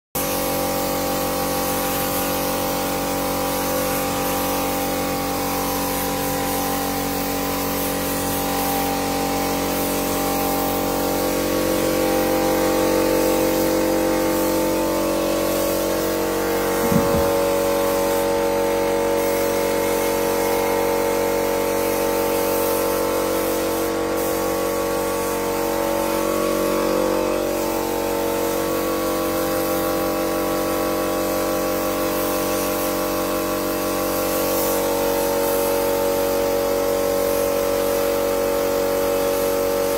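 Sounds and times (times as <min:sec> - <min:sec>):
air compressor humming: 0:00.2 - 0:20.0
air spray gun hissing: 0:00.2 - 0:39.9
short knock: 0:16.8 - 0:17.4.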